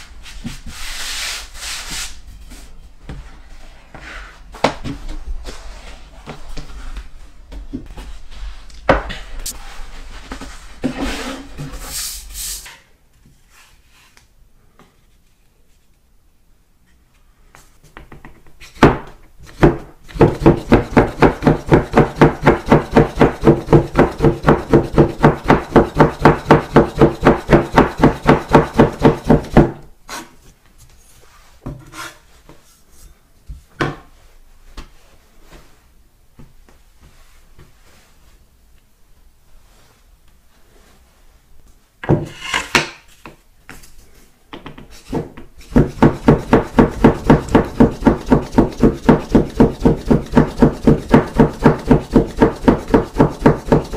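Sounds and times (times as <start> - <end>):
knife cutting dough on wooden board: 45.6 - 53.9.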